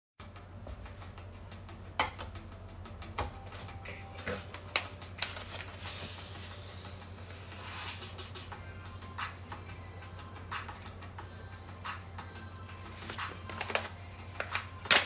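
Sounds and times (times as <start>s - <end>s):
paper bag crinkling: 5.2s - 6.1s.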